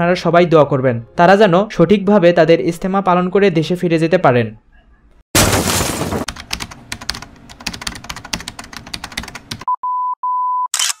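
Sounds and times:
rapid keyboard key clicks: 6.3 - 9.7.

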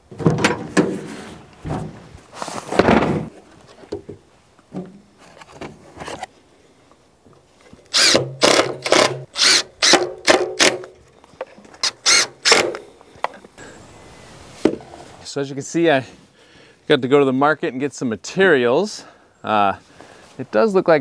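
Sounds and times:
impact driver driving screws: 7.9 - 10.9, 11.8 - 12.8.

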